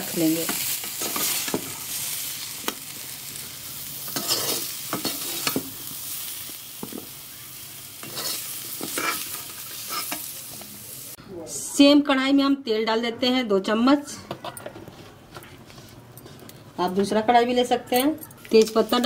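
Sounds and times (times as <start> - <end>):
food sizzling in oil: 0.0 - 11.2.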